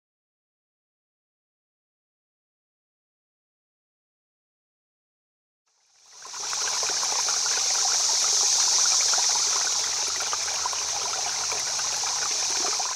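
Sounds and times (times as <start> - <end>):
stream water babbling: 5.8 - 12.9.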